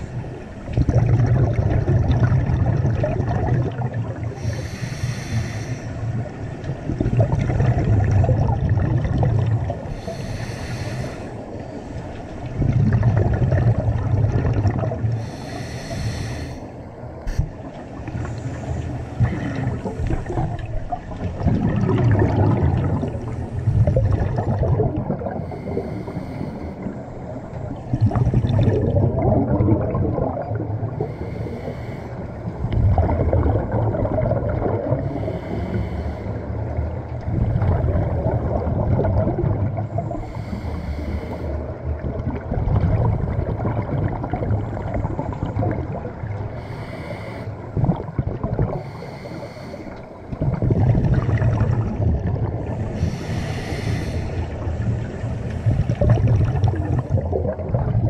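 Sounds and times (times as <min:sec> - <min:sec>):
bubbling exhales underwater: 0:00.6 - 0:04.6, 0:06.8 - 0:10.1, 0:12.6 - 0:15.3, 0:19.2 - 0:25.8, 0:27.8 - 0:31.2, 0:32.6 - 0:35.4, 0:36.8 - 0:40.4, 0:41.8 - 0:46.8, 0:47.7 - 0:49.0, 0:50.3 - 0:58.0
regulator hissing inhales: 0:04.4 - 0:06.0, 0:10.0 - 0:11.4, 0:15.2 - 0:17.5, 0:25.4 - 0:27.0, 0:35.1 - 0:36.5, 0:40.2 - 0:41.6, 0:46.6 - 0:47.6, 0:48.8 - 0:50.2, 0:53.0 - 0:54.6.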